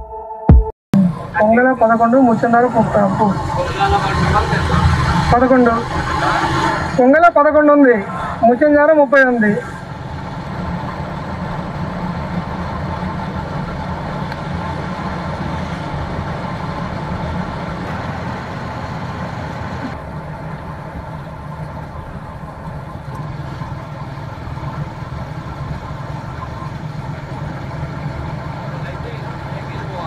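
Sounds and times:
road noise: 0:01.0 - 0:30.0
motorcycle engine running: 0:09.6 - 0:30.0.

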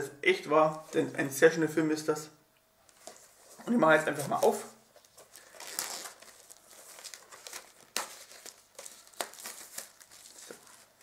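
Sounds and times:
plastic wrap crinkling and tearing: 0:04.3 - 0:11.0.

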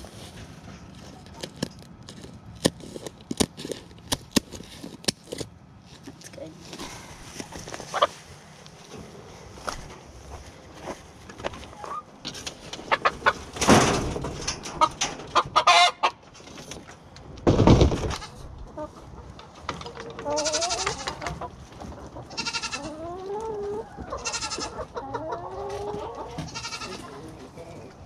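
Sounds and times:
rustling handling noise: 0:00.0 - 0:14.7
chickens calling: 0:07.5 - 0:28.0.

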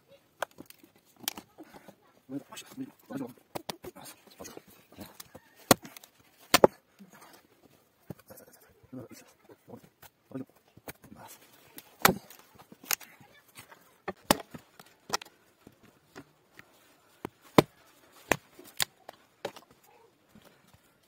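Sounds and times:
axe chopping log: 0:03.5 - 0:06.8, 0:11.8 - 0:13.0, 0:14.0 - 0:15.3, 0:17.2 - 0:19.7.

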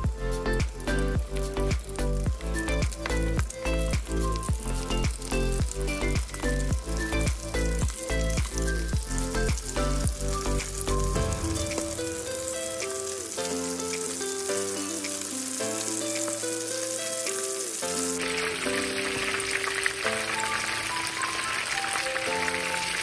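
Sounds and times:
background music: 0:00.0 - 0:23.0
meat deep-frying in oil: 0:00.0 - 0:23.0.

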